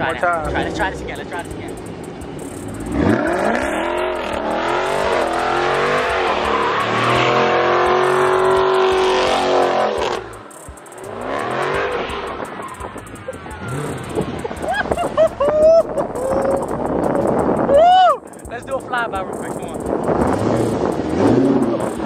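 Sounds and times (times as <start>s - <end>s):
tyres spinning: 0.0s - 22.0s
car engine revving hard: 2.6s - 15.2s, 19.8s - 22.0s.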